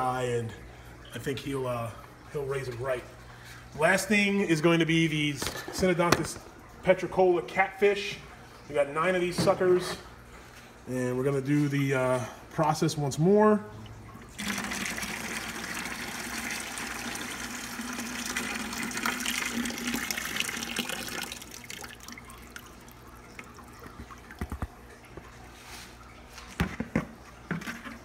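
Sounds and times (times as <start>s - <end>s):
water dripping: 13.6s - 26.5s
water pouring into a bucket: 14.2s - 24.7s.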